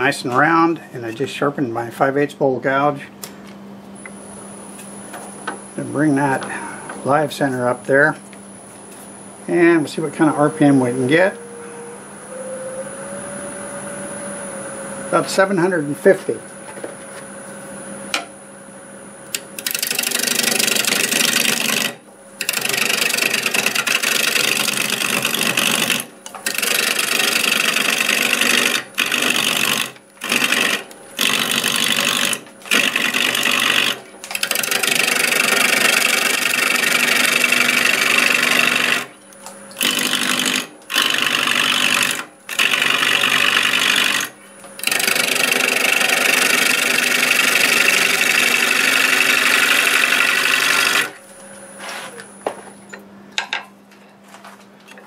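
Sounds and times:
gouge shearing spinning wood: 19.3s - 51.2s
wood lathe running: 19.3s - 51.2s.

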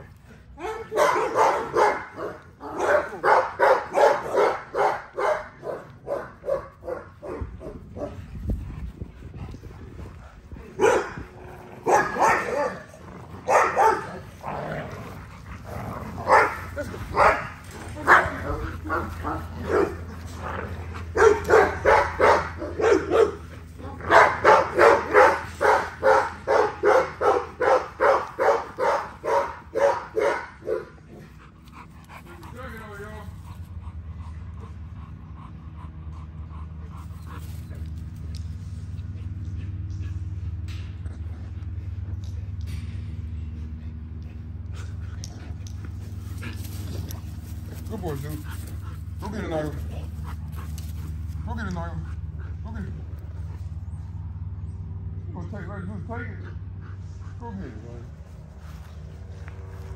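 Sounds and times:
dog barking: 0.6s - 8.2s, 10.8s - 11.2s, 11.8s - 12.9s, 13.5s - 14.2s, 16.2s - 20.0s, 21.1s - 31.0s.

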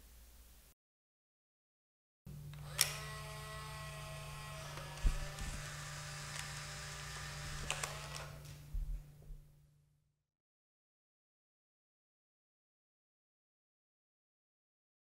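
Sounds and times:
camera motor whirring: 2.5s - 8.5s
camera shutter click: 7.6s - 8.4s.

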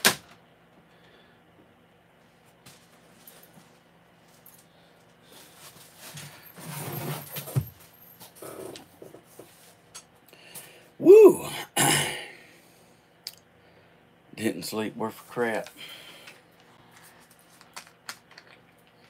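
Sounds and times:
shuffling and handling noises: 2.1s - 10.2s, 15.1s - 19.0s
man's short vocal sound: 11.0s - 12.3s.

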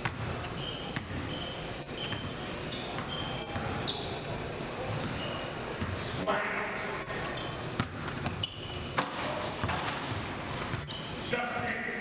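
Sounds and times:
basketball bouncing: 0.0s - 0.4s, 7.8s - 11.0s
sneakers squeaking: 0.0s - 6.1s, 6.7s - 11.4s.

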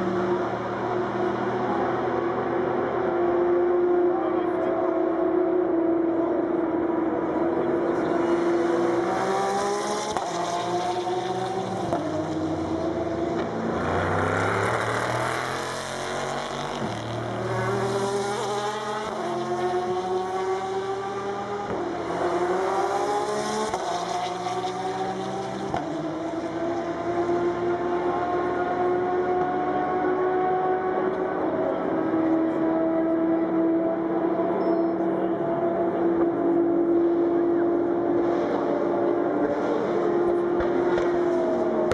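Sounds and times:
race car engines accelerating: 0.0s - 41.9s.

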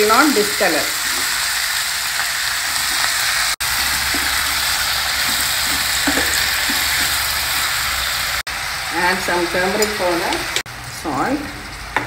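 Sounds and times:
vegetables sizzling in oil: 0.0s - 12.0s
wooden spatula stirring in pan: 1.0s - 8.3s.

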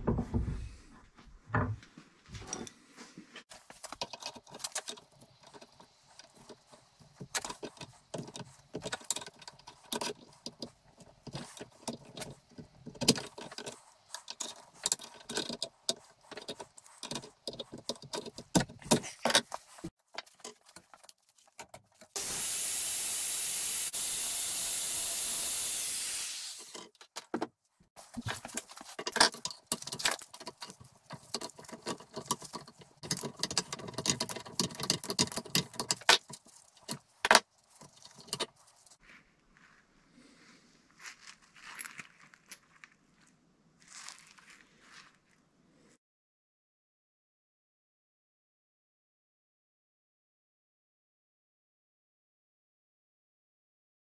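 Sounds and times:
loud steady hiss: 22.2s - 26.6s.

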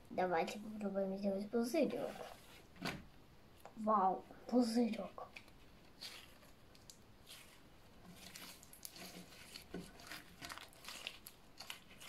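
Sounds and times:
slime crackling and clicking: 5.3s - 7.5s.

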